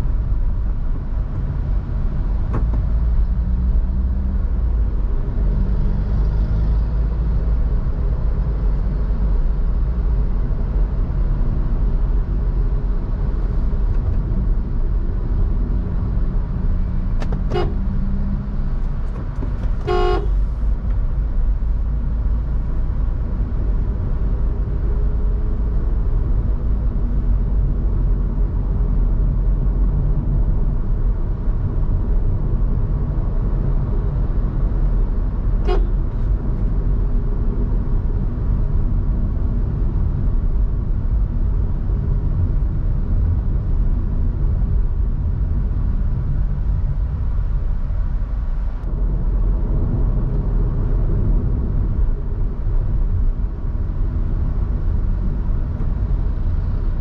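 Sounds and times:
car driving rumble: 0:00.0 - 0:57.0
car horn toot: 0:17.5 - 0:17.8, 0:19.8 - 0:20.4, 0:35.6 - 0:36.0.

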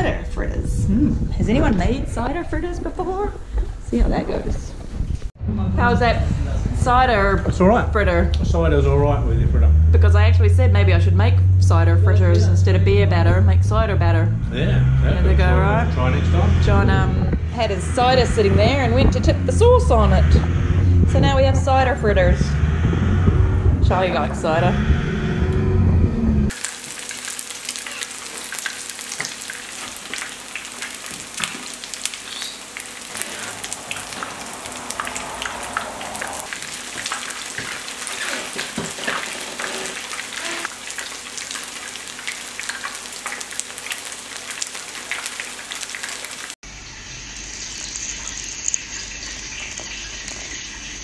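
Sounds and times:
fritters sizzling in hot oil: 0:26.5 - 0:51.0.

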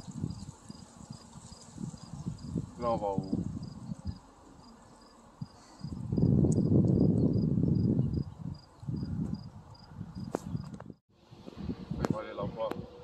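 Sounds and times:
crickets chirping: 0:00.0 - 0:10.8.

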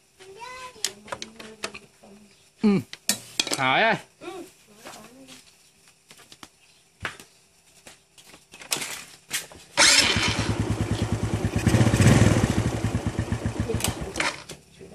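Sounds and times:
motorcycle engine running: 0:09.8 - 0:14.5.

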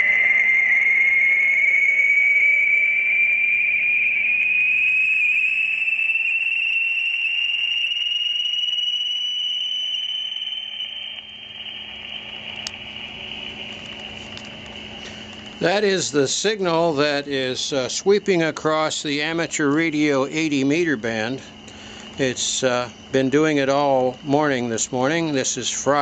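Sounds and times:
rising whistle tone: 0:00.0 - 0:26.0
radio band hiss: 0:11.5 - 0:26.0.

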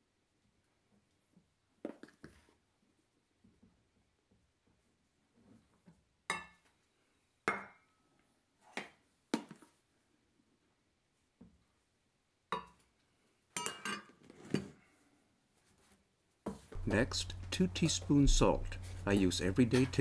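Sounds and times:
metal cup clinking on glass bowl: 0:13.6 - 0:14.1.

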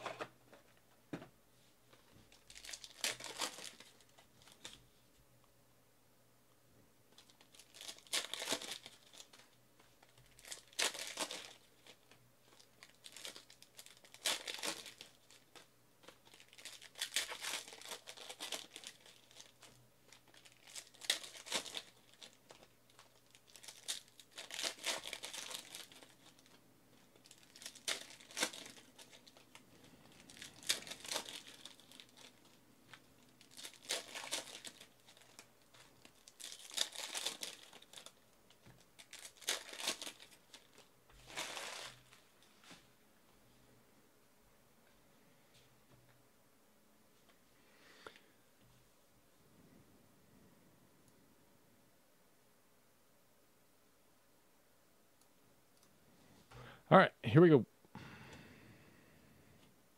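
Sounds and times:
foil packs tearing and crinkling: 0:02.4 - 0:04.7, 0:07.2 - 0:09.4, 0:10.2 - 0:26.6, 0:27.2 - 0:29.5, 0:30.1 - 0:32.6, 0:33.4 - 0:38.2, 0:38.8 - 0:42.2.

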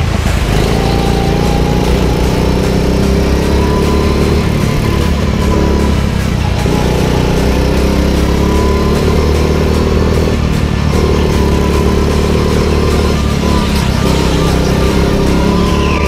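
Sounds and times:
go-kart engine at speed: 0:00.0 - 0:16.0.

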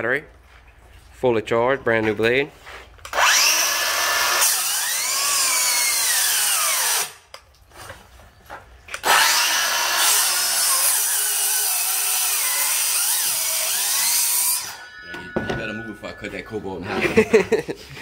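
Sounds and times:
circular saw cutting wood: 0:03.1 - 0:07.2, 0:09.0 - 0:16.3.

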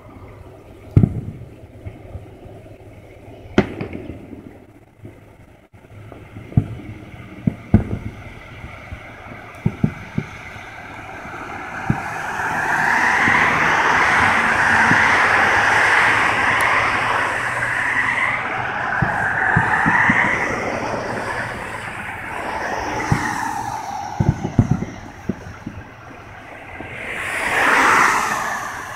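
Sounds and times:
vehicle passing by: 0:06.0 - 0:28.9.

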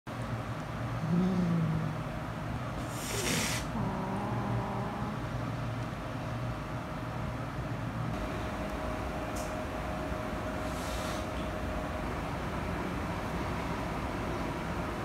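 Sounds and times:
cat growling: 0:01.0 - 0:02.0, 0:03.0 - 0:05.3
cat hissing: 0:02.8 - 0:04.3.

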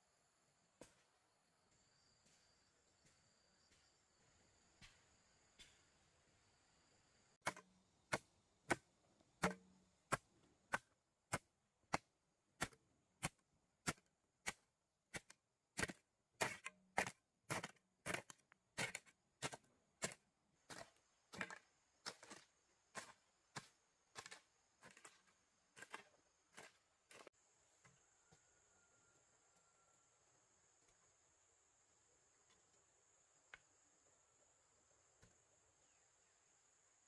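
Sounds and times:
blade chopping wood: 0:07.4 - 0:27.3.

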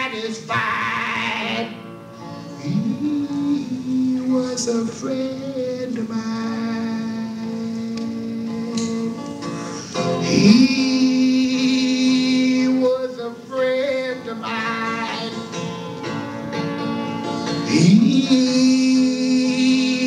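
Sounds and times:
man singing a slow folk song: 0:00.0 - 0:01.8, 0:02.5 - 0:15.6, 0:17.4 - 0:20.0
acoustic guitar: 0:00.0 - 0:20.0.

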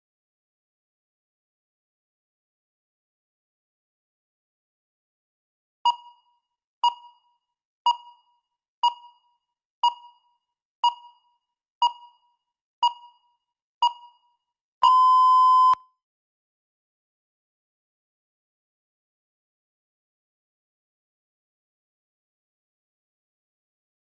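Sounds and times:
timer short beeps: 0:05.9 - 0:07.3, 0:07.9 - 0:12.2, 0:12.8 - 0:15.9
long steady beep: 0:14.8 - 0:15.9.

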